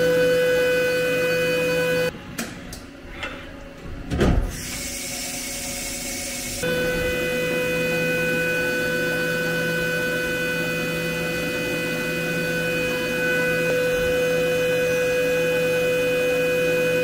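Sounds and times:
mill spindle whine: 0:04.6 - 0:17.0.

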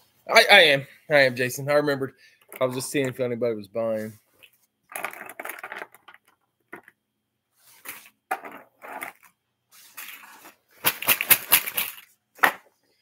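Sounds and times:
objects rustling and knocking: 0:04.0 - 0:07.0, 0:07.6 - 0:12.9.

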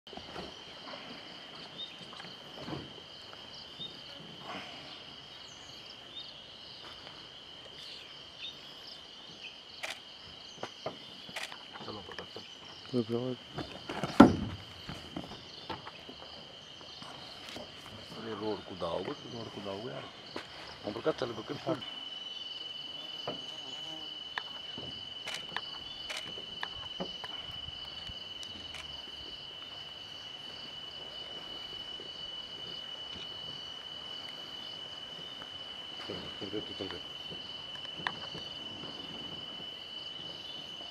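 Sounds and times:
insects droning: 0:00.1 - 0:40.9.

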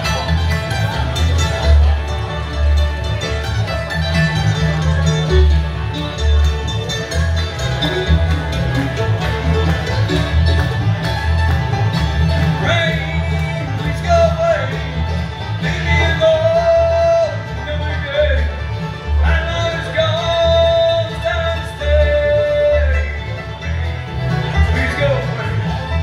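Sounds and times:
banjo: 0:00.0 - 0:26.0
bluegrass band playing: 0:00.0 - 0:26.0
upright bass: 0:00.0 - 0:26.0.

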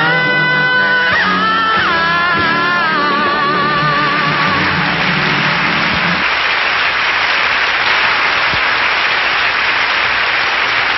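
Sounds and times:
audience applause: 0:03.6 - 0:10.9.

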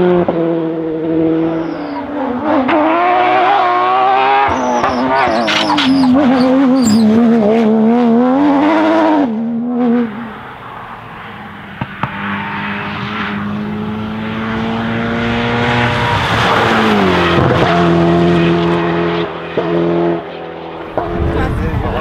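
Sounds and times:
rally car engine at high revs: 0:00.0 - 0:22.0
second rally car engine: 0:00.0 - 0:22.0.

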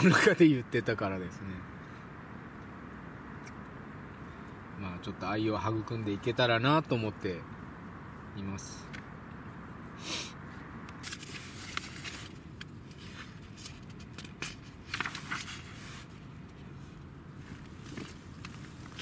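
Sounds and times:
paper pages rustling: 0:11.0 - 0:16.2.

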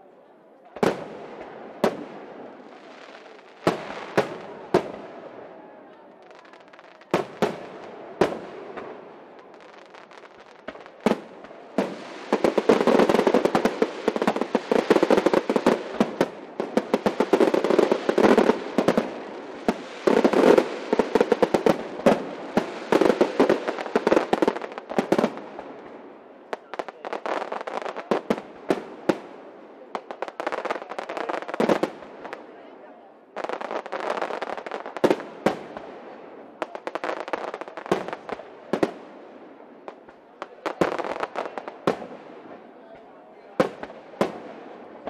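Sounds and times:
firework bangs: 0:00.8 - 0:05.4, 0:06.2 - 0:29.4
firework crackling: 0:00.8 - 0:05.4, 0:06.1 - 0:32.5.

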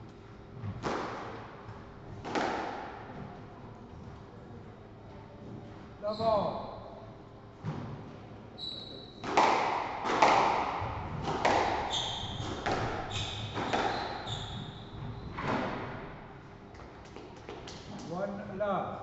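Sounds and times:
squash ball strikes: 0:00.8 - 0:01.4, 0:02.2 - 0:03.1, 0:09.2 - 0:14.3
shoe squeaks on wooden floor: 0:08.6 - 0:09.2, 0:11.8 - 0:15.5.

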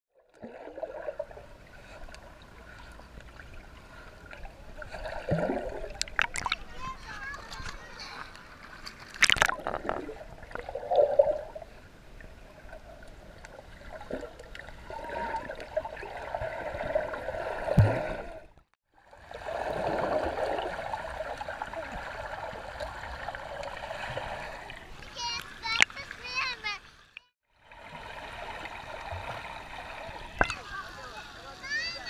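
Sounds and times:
water splash: 0:04.8 - 0:07.6, 0:08.5 - 0:11.6, 0:13.4 - 0:18.6
underwater gurgling and bubbling: 0:09.2 - 0:18.5, 0:19.1 - 0:24.8.

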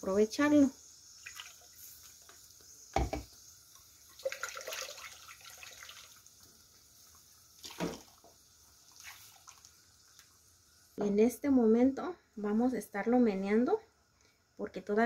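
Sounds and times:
dull knock: 0:03.0 - 0:03.3.

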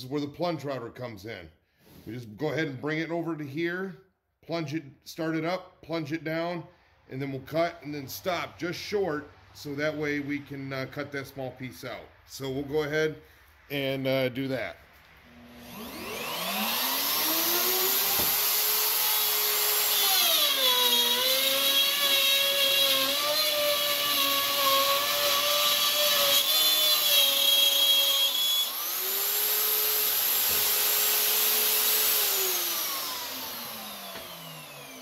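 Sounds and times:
router cutting plywood: 0:15.3 - 0:35.0.

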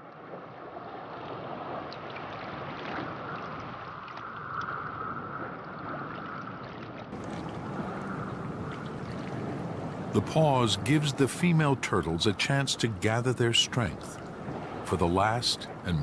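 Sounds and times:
underwater rush of water: 0:00.0 - 0:16.0
faint underwater clicks: 0:01.9 - 0:09.4.

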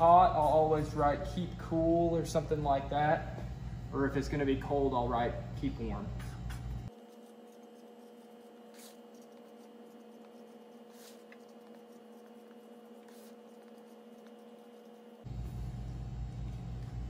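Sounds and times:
steady low hum: 0:00.0 - 0:17.0
marker scratching on cardboard: 0:06.2 - 0:15.3.

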